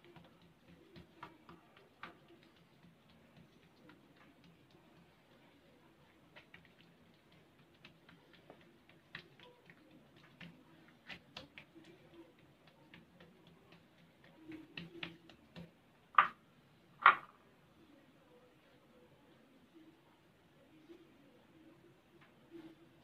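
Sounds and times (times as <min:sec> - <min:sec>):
hands tapping dough on counter: 0:00.0 - 0:05.1, 0:06.3 - 0:16.4.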